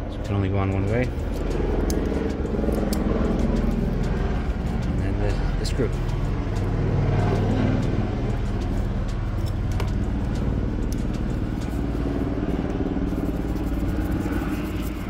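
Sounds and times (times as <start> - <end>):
low engine rumble: 0.0 - 15.0.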